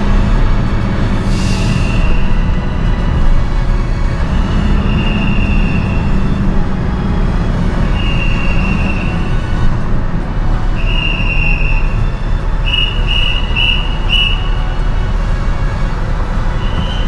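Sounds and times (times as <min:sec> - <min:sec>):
whistle long blasts: 0:00.0 - 0:09.6, 0:10.6 - 0:17.0
low rumble of engines and machinery: 0:00.0 - 0:17.0
whistle short pips: 0:01.4 - 0:02.6, 0:04.8 - 0:06.3, 0:07.9 - 0:09.4, 0:10.8 - 0:14.7, 0:16.6 - 0:17.0.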